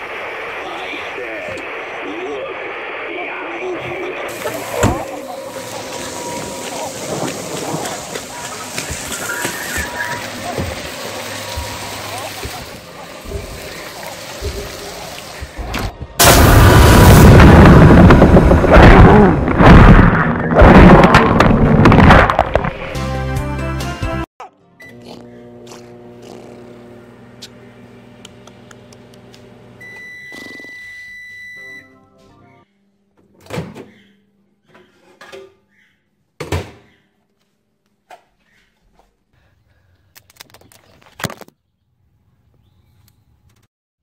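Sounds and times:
thumps: 17.9 - 22.9
microwave oven humming: 24.8 - 31.9
long beep: 29.8 - 32.0.

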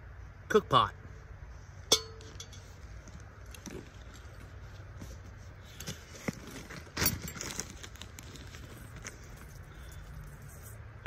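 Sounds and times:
nylon bag rustling: 3.0 - 10.1.

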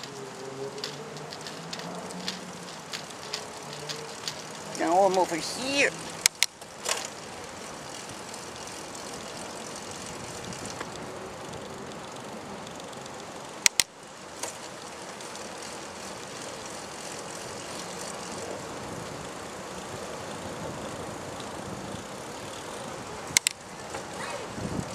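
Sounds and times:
sharp clicks: 0.0 - 7.1, 13.6 - 14.6, 23.3 - 23.6
wheels rolling: 0.0 - 24.9.

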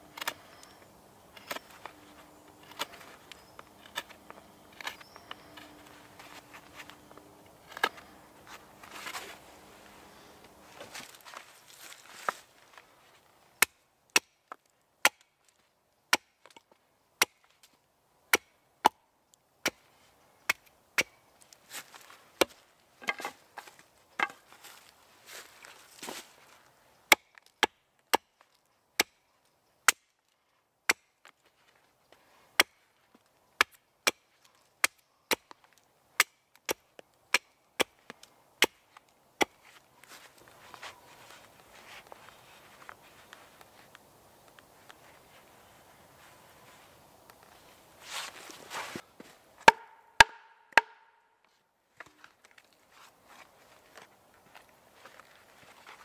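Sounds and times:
hatchet chopping wood: 13.6 - 15.3, 16.1 - 16.5, 17.2 - 17.4, 18.3 - 19.0, 20.5 - 21.2, 27.1 - 28.4, 29.0 - 29.2, 29.8 - 30.1, 30.9 - 31.1, 32.6 - 32.8, 33.6 - 35.6, 36.2 - 38.8, 49.6 - 51.2.

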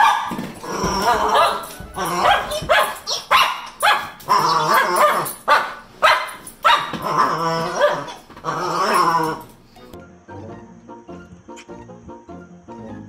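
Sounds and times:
dog barking: 0.0 - 9.4.

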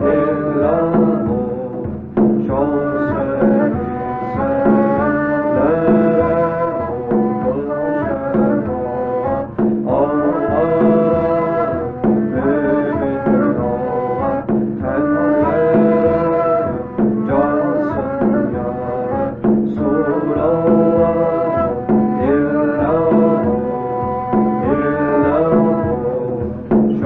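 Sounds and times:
hand drum beat: 0.0 - 27.0.

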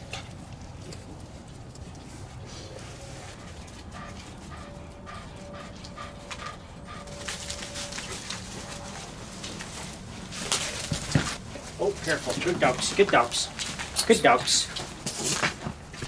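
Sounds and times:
dogs digging through wood chips: 0.1 - 16.0
dogs whining: 2.6 - 9.7.

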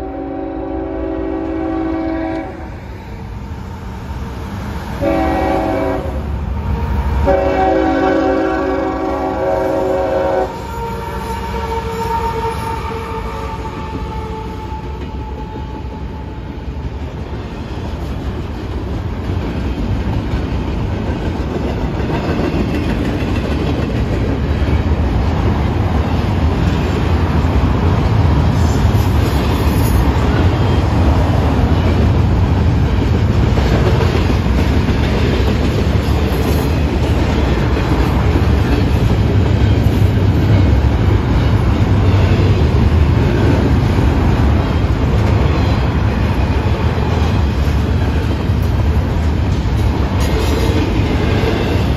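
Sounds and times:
train horn: 0.0 - 2.8, 5.0 - 16.6
train wheels on rails: 0.0 - 51.9.

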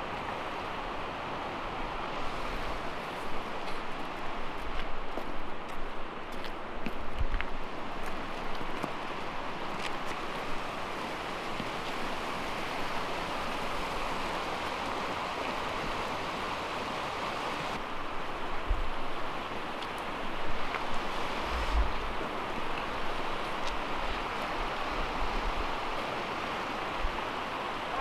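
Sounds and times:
river rushing over rocks: 7.5 - 28.0
low bumps: 20.9 - 22.3.

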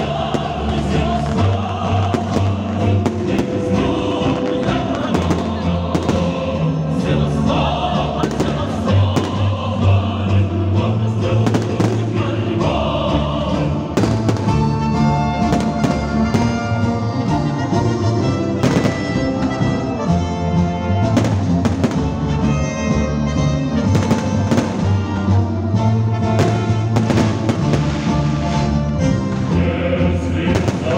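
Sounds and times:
orchestral music with singing: 0.0 - 30.9
fireworks bangs: 0.3 - 6.4, 8.2 - 9.5, 11.4 - 12.2, 14.0 - 16.9, 18.6 - 19.3, 21.1 - 22.4, 23.8 - 25.3, 26.2 - 28.7, 30.5 - 30.9.

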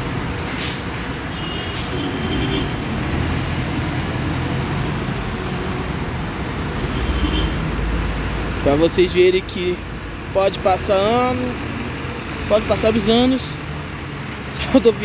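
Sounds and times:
bus diesel engine running: 0.0 - 15.0
road traffic: 0.0 - 15.0
short hissing sounds: 0.5 - 2.7.

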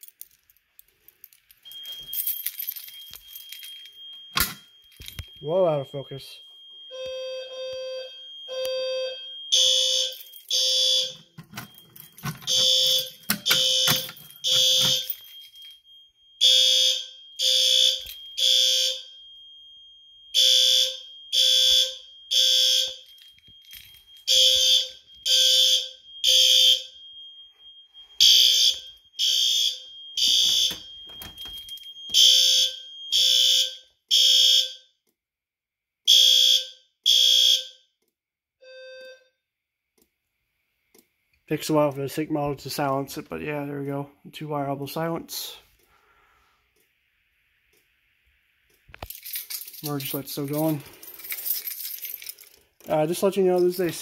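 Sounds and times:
fire alarm horns pulsing: 3.3 - 23.2, 24.1 - 35.0, 36.0 - 38.0, 38.6 - 39.4.

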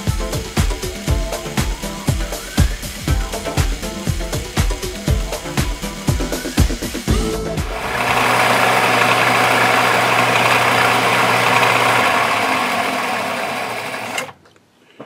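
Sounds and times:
metal lathe running: 7.6 - 14.3.

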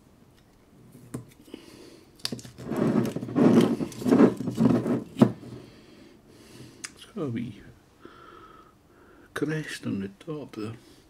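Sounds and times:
cork rubbing and creaking in bottle: 2.3 - 5.2.

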